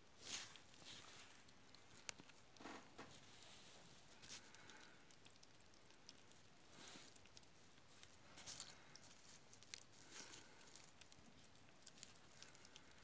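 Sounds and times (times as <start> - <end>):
kitten chewing and lapping food: 0.0 - 13.0.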